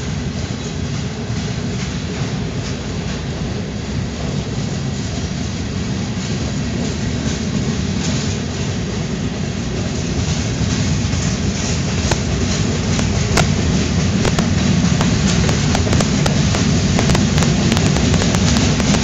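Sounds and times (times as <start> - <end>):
train wheels rumbling on rails: 0.0 - 19.0
sharp clicks: 14.2 - 19.0.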